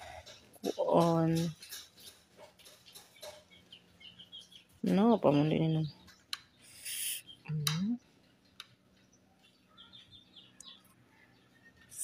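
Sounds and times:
faint high bird chirps: 2.8 - 12.0.

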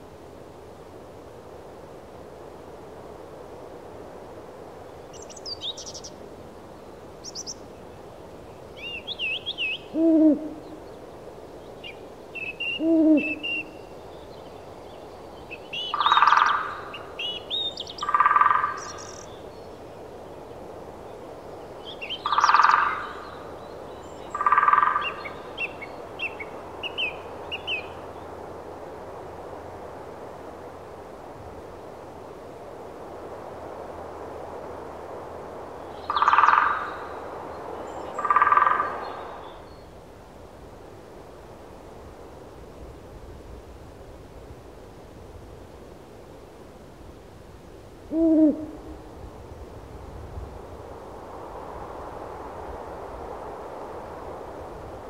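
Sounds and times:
steady outdoor hiss: 0.0 - 55.0
small birds chirping: 5.1 - 6.1, 7.2 - 7.6
owl hooting: 9.2 - 10.8, 12.4 - 13.8, 15.9 - 17.1, 18.0 - 19.2, 22.2 - 23.2, 24.3 - 25.3, 36.1 - 37.0, 38.2 - 39.1, 48.1 - 49.0.

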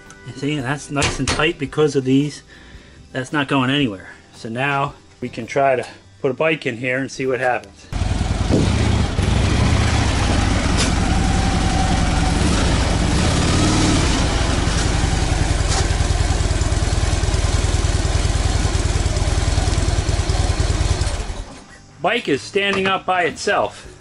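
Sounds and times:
motorcycle engine low throb: 7.9 - 21.5.

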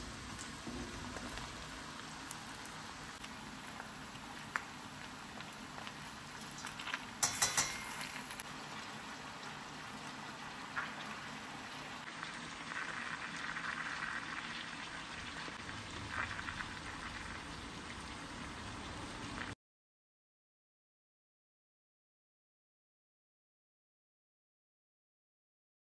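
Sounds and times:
strainer tapping on steel pot: 7.2 - 8.0.

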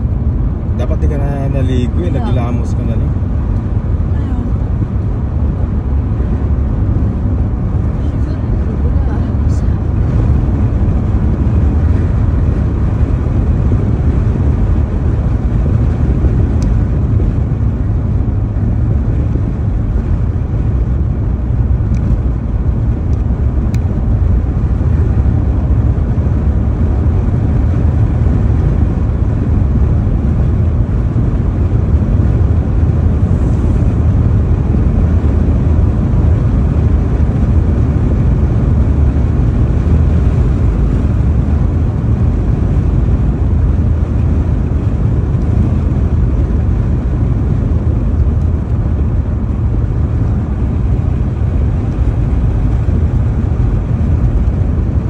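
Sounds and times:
car interior road rumble: 0.0 - 55.0.

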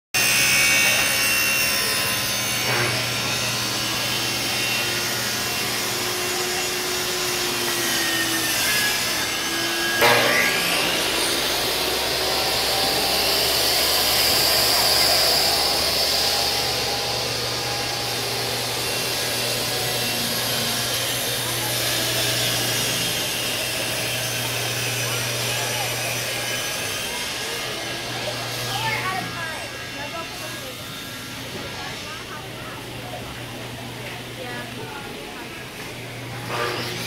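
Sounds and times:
table saw cutting wood: 0.2 - 37.0.

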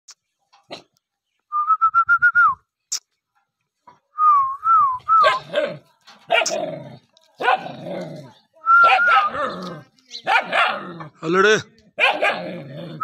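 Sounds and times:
dog barking in harsh yips: 5.2 - 6.6, 7.4 - 7.7, 8.8 - 9.4, 10.2 - 10.8, 12.0 - 12.5.

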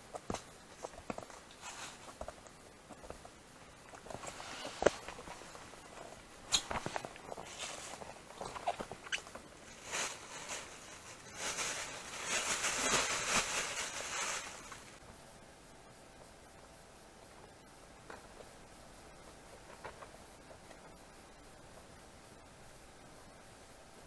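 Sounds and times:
mesh bag rustling: 4.0 - 15.0.

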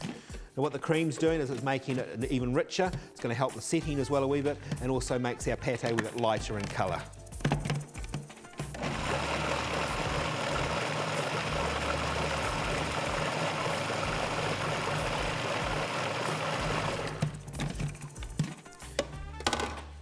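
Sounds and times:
food processor motor running: 8.7 - 17.4.

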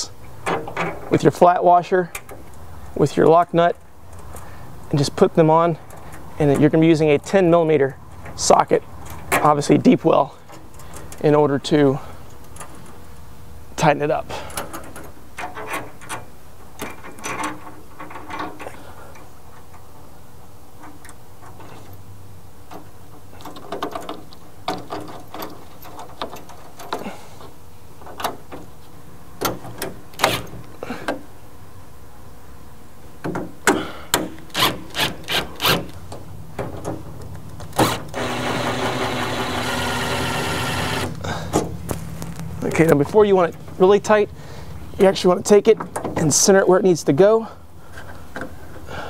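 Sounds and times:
cordless power tool running: 37.8 - 41.2.

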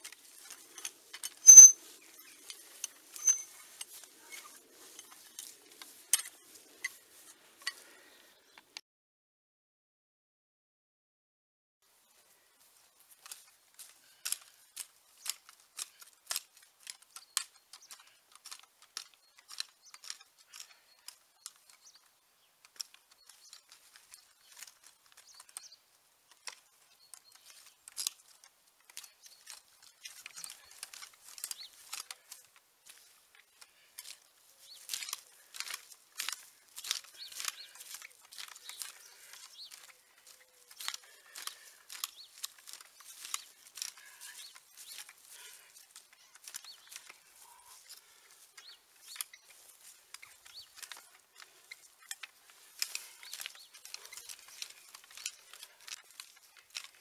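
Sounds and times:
cultivator scraping soil: 0.0 - 7.2, 28.9 - 57.0.

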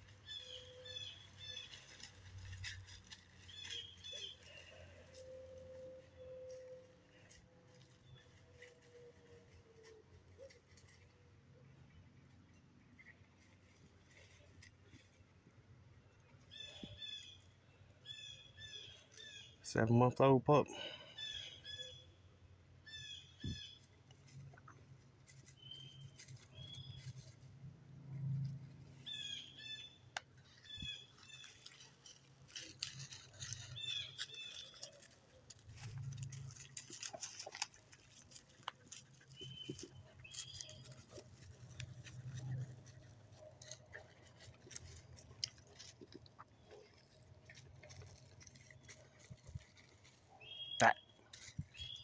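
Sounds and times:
footsteps crunching dry leaves: 0.0 - 11.0, 29.1 - 52.0
songbirds chirping: 0.0 - 52.0.

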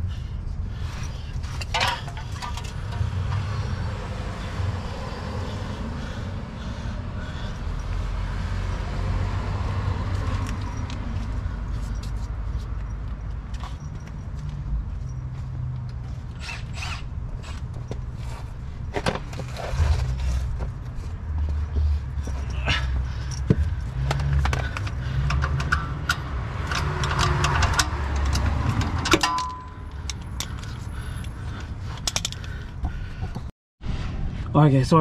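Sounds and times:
hand tools clinking on metal: 22.2 - 30.9
steady low rumble: 28.5 - 35.0.

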